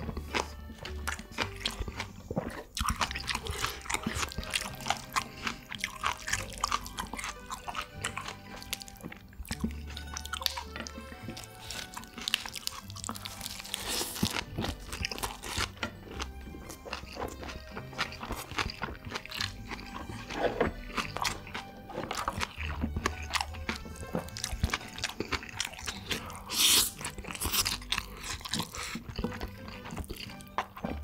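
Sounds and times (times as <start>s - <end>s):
background music: 0.0s - 31.0s
crunching and chewing food: 0.0s - 31.0s.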